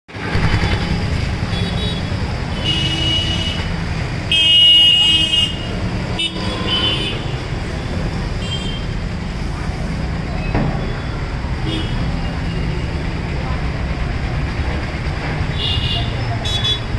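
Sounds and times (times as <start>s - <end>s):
street traffic rumbling: 0.1s - 16.9s
vehicle horns honking: 0.2s - 7.6s, 10.9s - 12.7s, 15.5s - 16.9s.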